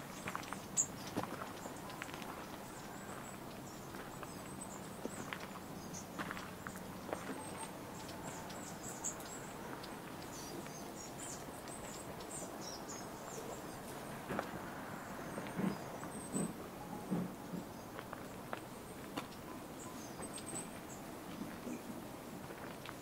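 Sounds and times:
small birds chirping: 0.0s - 16.6s, 17.6s - 22.0s
outdoor background noise: 0.0s - 23.0s
footsteps on path: 0.1s - 10.8s, 13.8s - 14.7s.

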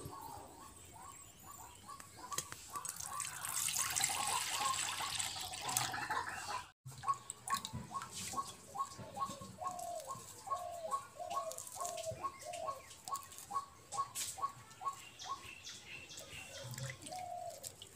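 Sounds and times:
water pouring into steel bowl: 2.8s - 6.2s.

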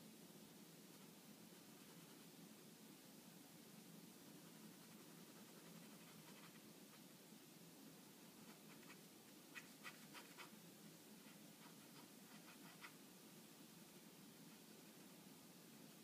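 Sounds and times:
low steady background hum: 0.0s - 16.0s
pen scratching on paper: 4.4s - 7.0s, 8.4s - 10.6s, 11.2s - 13.0s.

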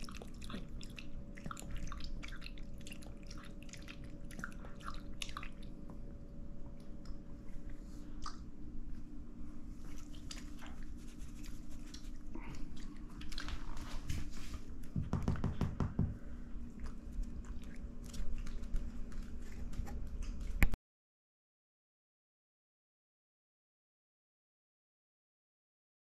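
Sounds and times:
dog chewing: 0.0s - 6.0s, 16.6s - 20.8s
faint steady hum: 0.0s - 20.8s.

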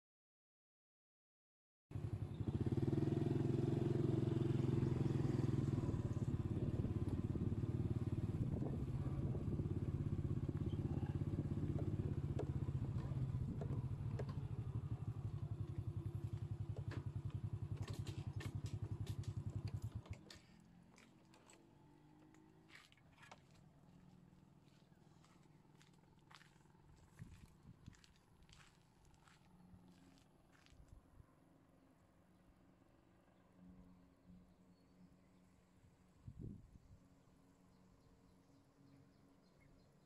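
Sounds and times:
small engine putter: 2.1s - 23.8s.

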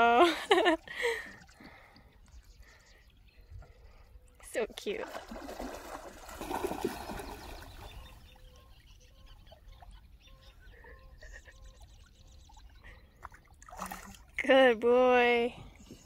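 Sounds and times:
dog splashing and paddling: 4.8s - 7.9s.

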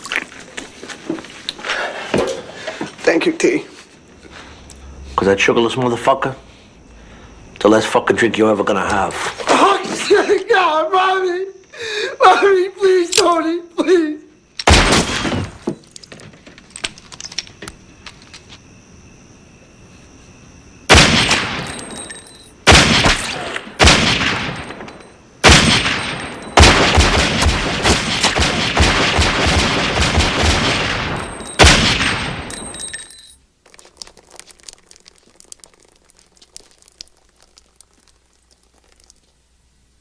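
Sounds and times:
faint scattered ticks: 0.0s - 14.7s, 15.8s - 20.9s, 32.6s - 40.0s
gunshots: 14.6s - 15.6s, 20.9s - 21.7s, 22.7s - 32.5s.

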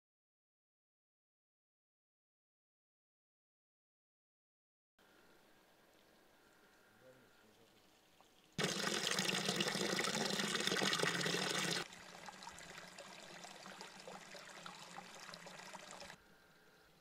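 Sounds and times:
water pouring into a trough: 8.6s - 16.2s.

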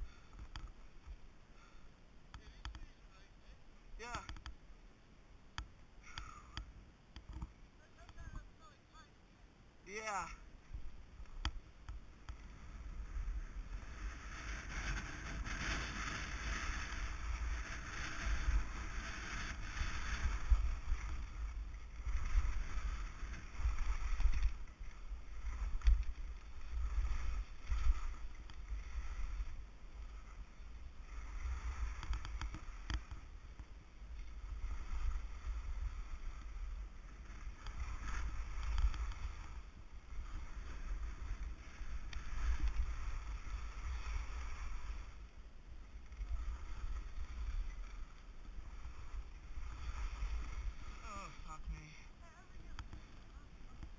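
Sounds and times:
skis scraping over packed snow: 0.0s - 4.8s, 5.6s - 9.1s, 9.8s - 53.9s
low wind rumble on microphone: 9.8s - 53.9s.

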